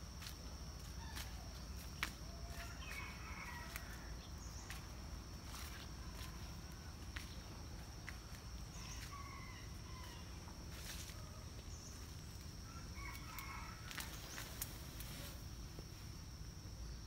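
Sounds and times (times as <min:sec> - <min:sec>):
high insect drone: 0:00.0 - 0:17.0
rooster crowing faintly: 0:01.0 - 0:04.3, 0:08.7 - 0:11.6, 0:12.6 - 0:14.7.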